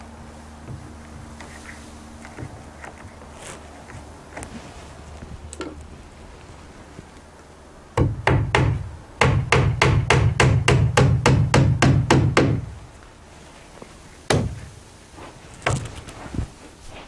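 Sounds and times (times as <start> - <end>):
hammer driving nails into wood: 8.0 - 12.7.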